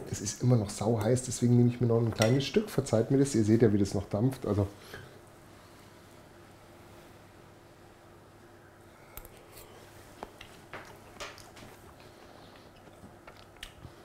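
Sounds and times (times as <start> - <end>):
man chewing food: 9.2 - 14.0.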